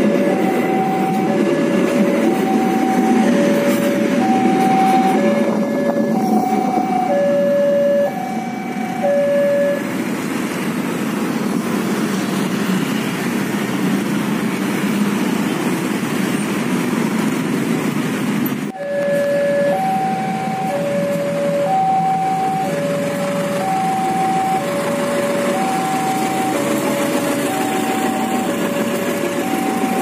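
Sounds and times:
level crossing alarm two-tone: 0.0 - 9.9, 18.7 - 30.0
road traffic: 0.0 - 30.0
train rumbling past: 0.0 - 30.0.

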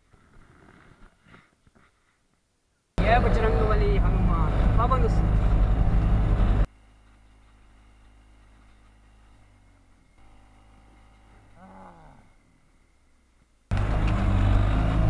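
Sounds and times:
truck engine running: 3.0 - 11.6, 12.3 - 15.0
moving truck rumble: 3.0 - 15.0
faint falling whine: 4.7 - 14.7.

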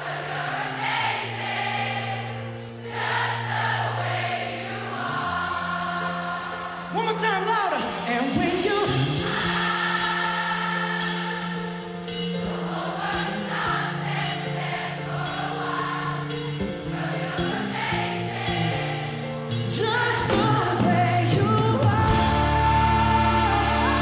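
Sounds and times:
crowd singing along: 0.0 - 7.0, 7.8 - 24.0
live pop band: 6.6 - 24.0
steady drum beat: 7.0 - 13.5, 19.7 - 24.0.

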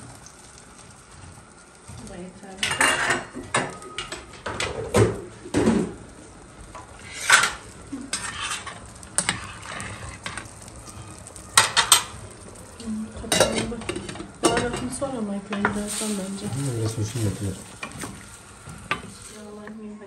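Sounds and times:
vegetables sizzling in a pan: 0.0 - 20.0
utensils knocking on pots: 2.6 - 6.0, 11.6 - 12.2, 13.3 - 19.8
wooden spoon stirring: 7.0 - 19.8.

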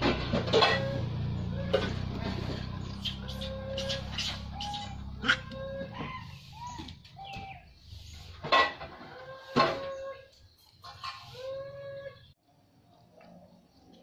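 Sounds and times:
monkeys coo calling: 0.6 - 7.8.

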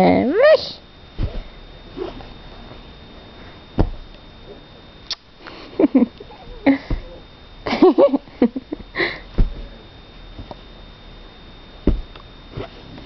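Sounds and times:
soft dull knocks: 11.8 - 12.2.

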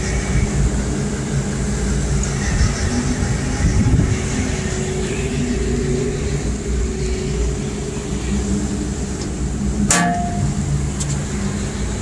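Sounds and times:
diesel engines droning: 0.0 - 12.0
sharp metallic clank: 9.9 - 10.6.

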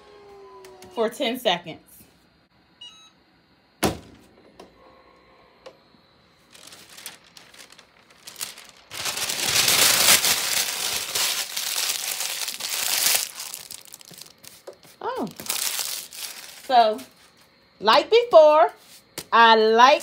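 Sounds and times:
paper rustling and crinkling: 6.4 - 17.5.

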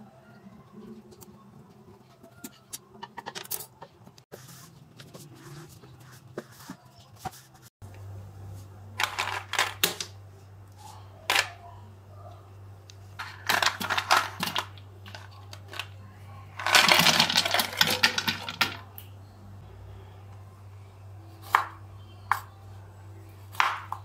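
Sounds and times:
ice cubes clinking: 16.6 - 18.8.

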